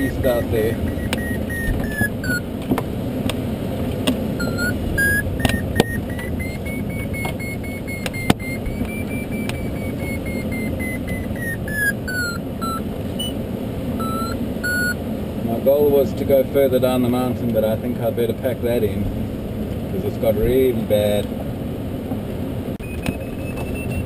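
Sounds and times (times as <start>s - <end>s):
variometer beeping tone: 0.0s - 2.5s, 4.4s - 13.4s, 14.0s - 15.0s, 22.8s - 24.0s.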